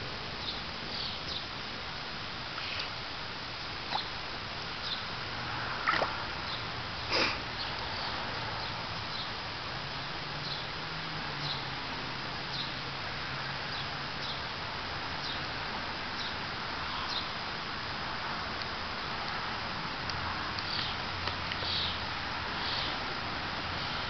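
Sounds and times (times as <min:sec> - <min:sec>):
steady outdoor hiss: 0:00.0 - 0:24.0.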